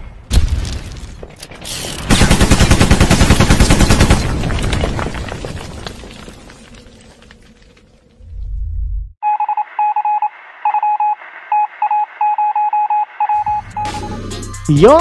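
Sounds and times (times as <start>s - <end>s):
high electronic beeps: 9.2s - 15.0s.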